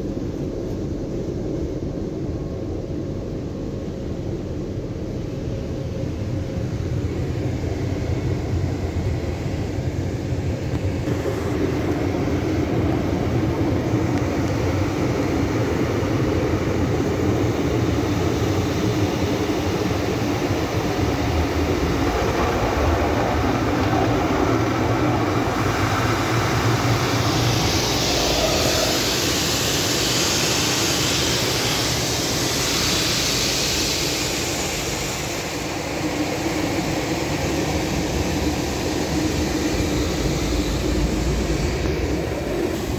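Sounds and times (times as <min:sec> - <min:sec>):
car wash machinery rumbling: 0:10.8 - 0:42.9
loud hiss: 0:11.0 - 0:42.9.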